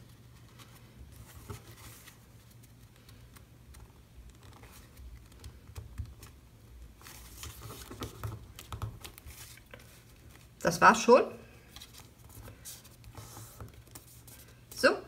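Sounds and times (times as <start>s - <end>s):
paper rustling and tapping: 0.5s - 6.4s, 7.0s - 10.4s.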